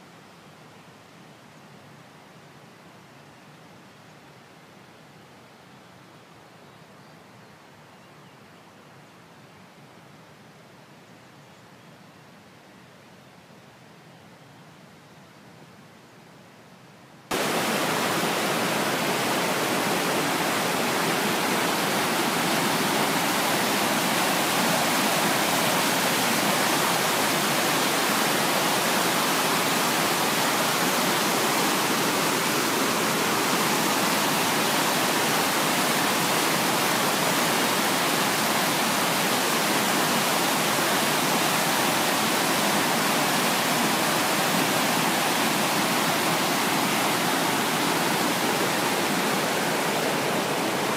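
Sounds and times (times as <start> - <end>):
stream rushing over boulders: 17.3 - 50.9.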